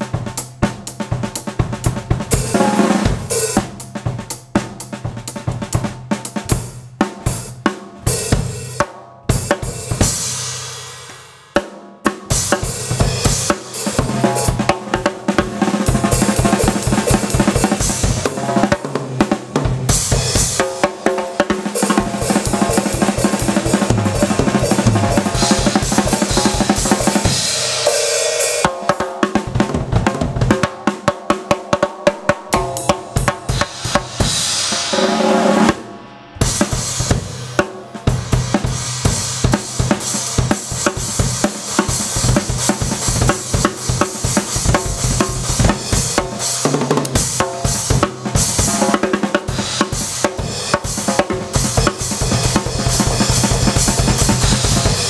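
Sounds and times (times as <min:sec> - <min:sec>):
drum kit playing fast: 0:00.0 - 0:55.0
cymbal crashes: 0:32.6 - 0:39.5.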